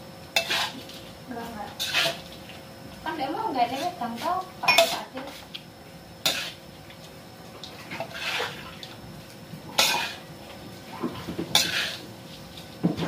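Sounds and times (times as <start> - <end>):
dishes and metal pots clattering: 4.6 - 5.0, 9.7 - 10.2, 11.0 - 12.0.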